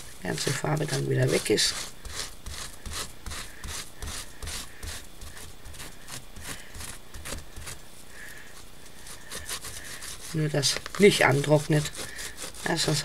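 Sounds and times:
wet wipe scrubbing a textured plate: 0.0s - 7.9s, 8.5s - 13.0s.

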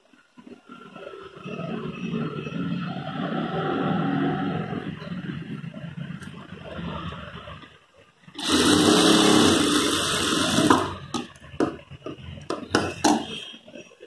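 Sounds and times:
sewing machine stitching: 8.4s - 11.0s.

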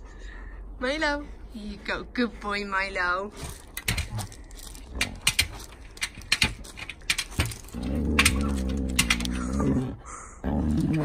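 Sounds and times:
dog growling grumble: 7.7s - 11.0s.

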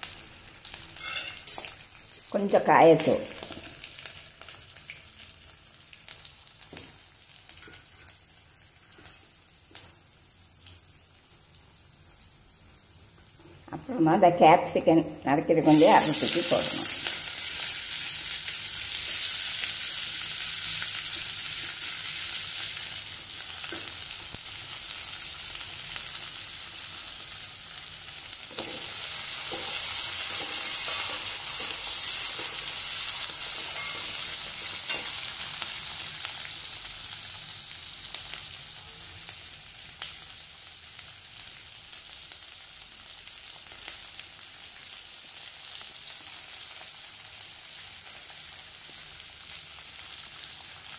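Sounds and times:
vegetables sizzling in hot oil: 0.0s - 50.9s
steel spatula scraping: 1.0s - 1.7s, 28.5s - 35.4s.

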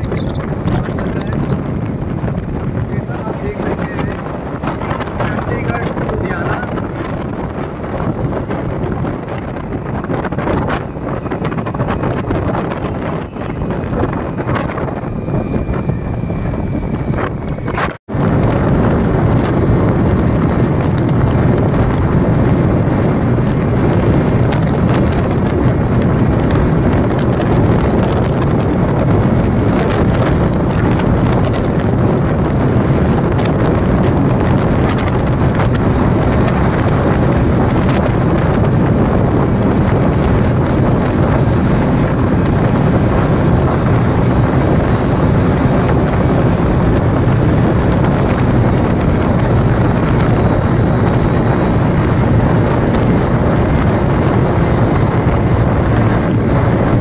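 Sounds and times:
motorcycle engine: 0.0s - 57.0s
road noise: 0.0s - 57.0s
wind rushing on microphone: 0.0s - 57.0s.

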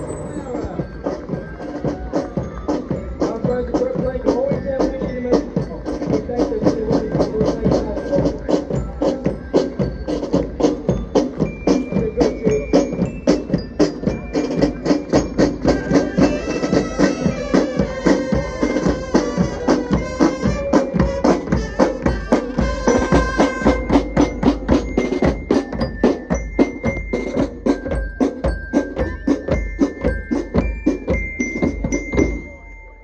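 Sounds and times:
snare and bass drums: 0.0s - 32.5s
glockenspiel notes: 0.0s - 33.0s
sustained brass notes: 15.8s - 24.1s.

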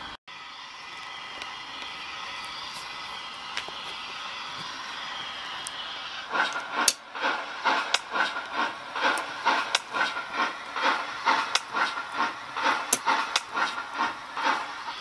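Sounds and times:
steam hiss: 0.0s - 15.0s
steam locomotive chuffing: 0.0s - 15.0s
sharp clicks: 7.6s - 14.6s.

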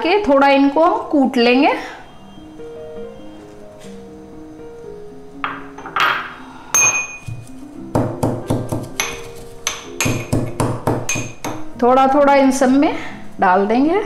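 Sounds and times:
pestle clinking in steel cup: 6.8s - 11.6s.

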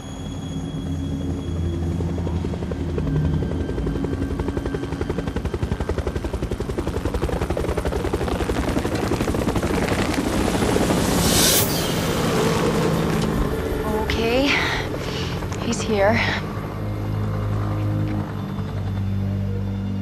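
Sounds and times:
loud rushing burst: 10.4s - 13.8s.

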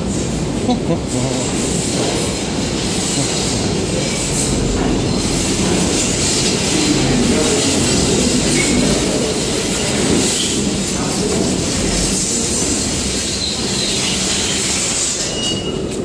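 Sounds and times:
subway train wheels rumbling: 0.0s - 16.0s
high brake squeals: 8.5s - 9.2s, 13.2s - 16.0s.

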